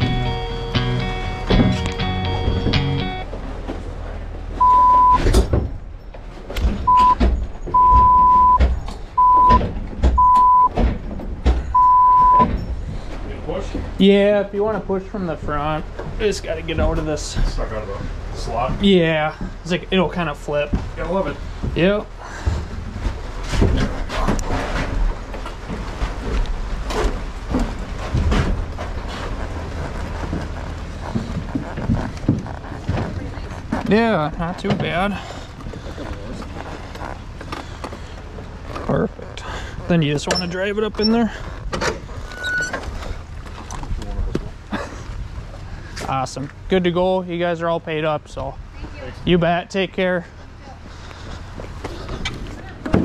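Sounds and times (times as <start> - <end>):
censor bleeps: 4.6 - 5.3, 6.9 - 8.6, 9.2 - 9.6, 10.2 - 10.7, 11.7 - 12.5
motorcycle knocks and clunks in trailer: 20.6 - 35.8.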